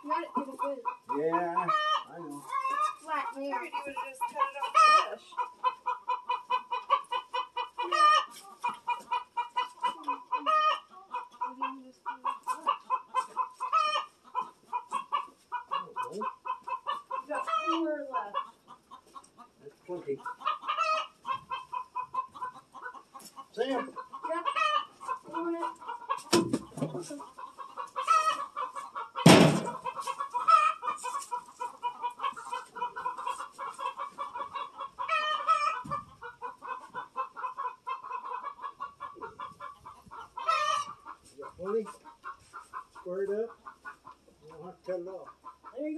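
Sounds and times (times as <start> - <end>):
chickens clucking: 0.0 - 45.9
loud knock: 29.3 - 29.7.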